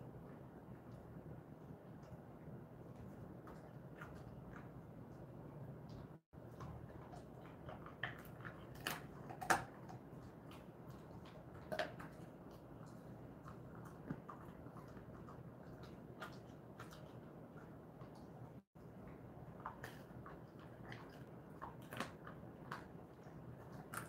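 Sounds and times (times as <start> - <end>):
dog chewing a treat: 5.9 - 24.0.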